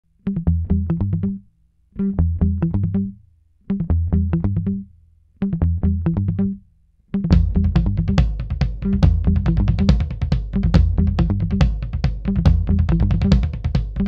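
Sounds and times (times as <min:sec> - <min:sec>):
riff of quick notes over bass: 0:07.2 - 0:14.0.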